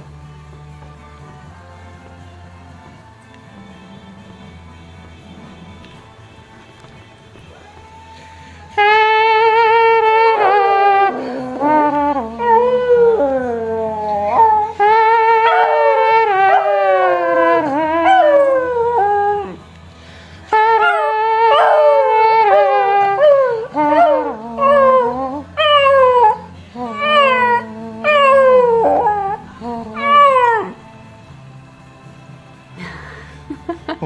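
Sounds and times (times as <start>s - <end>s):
faint radio music: 0.0s - 34.0s
dog howling: 8.9s - 19.6s, 20.5s - 30.8s.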